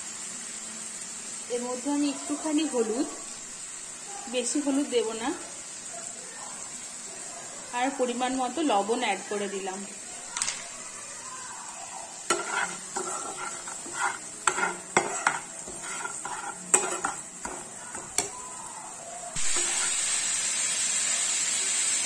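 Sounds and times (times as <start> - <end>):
spice paste sizzling: 0.0 - 22.0
metal spatula scraping frying pan: 12.3 - 18.3, 19.4 - 20.2.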